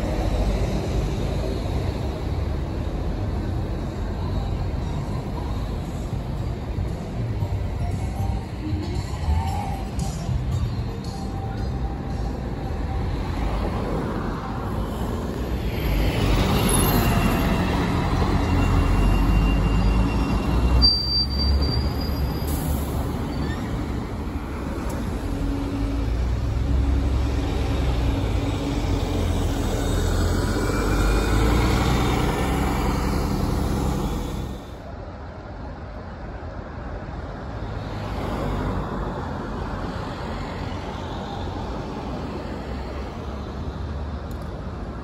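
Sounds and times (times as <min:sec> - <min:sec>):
bus and cars passing: 0:00.0 - 0:45.0
brief high squeal: 0:18.4 - 0:23.8.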